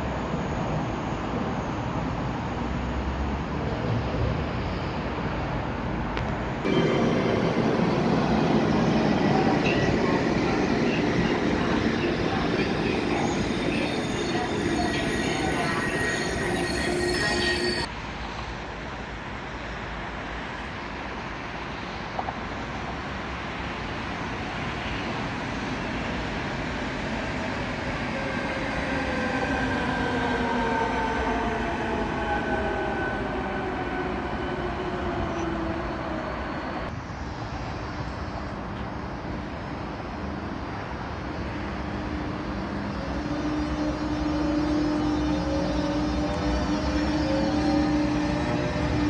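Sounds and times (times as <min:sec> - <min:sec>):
electric train passing: 0:00.0 - 0:49.0
train wheels squealing: 0:06.7 - 0:17.9, 0:42.6 - 0:49.0.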